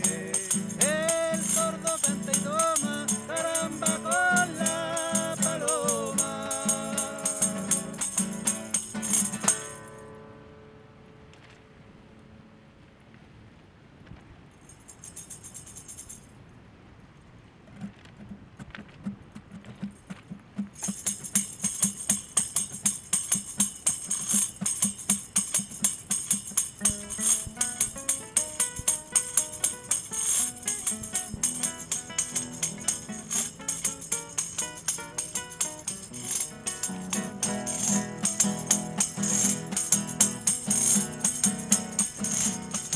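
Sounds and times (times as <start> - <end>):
tambourine rhythm: 0.0 - 10.0, 20.6 - 42.9
river water rushing: 0.0 - 11.0
acoustic guitar: 0.0 - 11.7, 17.7 - 42.9.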